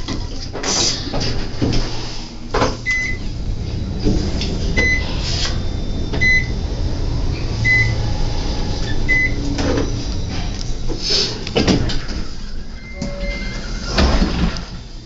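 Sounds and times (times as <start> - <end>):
elevator ride rumble: 0.0 - 15.0
elevator clunk: 2.5 - 14.9
short electronic beeps: 4.8 - 5.0, 6.2 - 6.6, 7.6 - 8.0.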